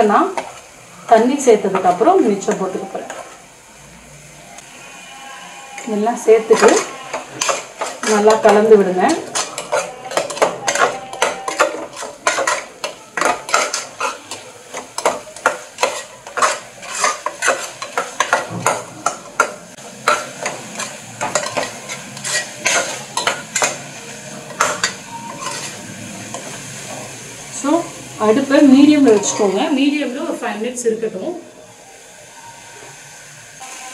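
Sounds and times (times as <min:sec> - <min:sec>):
light sizzle of frying: 0:00.0 - 0:33.9
spoon scraping a metal pot: 0:05.2 - 0:23.8, 0:24.5 - 0:26.6, 0:29.0 - 0:29.6.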